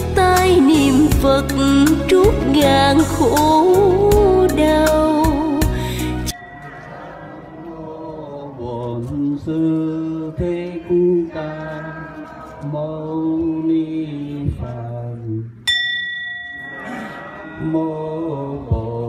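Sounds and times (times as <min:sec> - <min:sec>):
small bell ringing: 0:06.3 - 0:08.2, 0:15.7 - 0:18.6
voices chanting: 0:06.3 - 0:15.4, 0:16.6 - 0:19.0.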